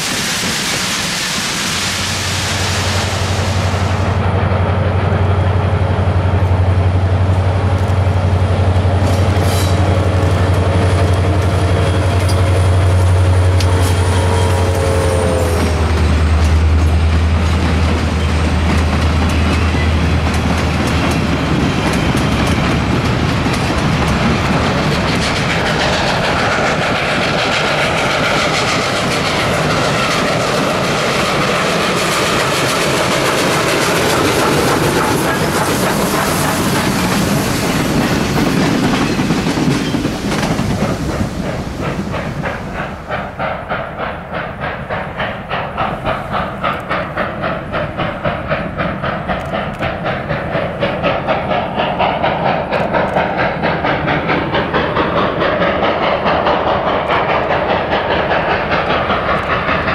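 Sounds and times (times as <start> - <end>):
rhythmic locomotive beats: 0.0 - 59.9
steam locomotive working hard: 0.0 - 59.9
train rumble and wheel clatter: 0.0 - 59.9.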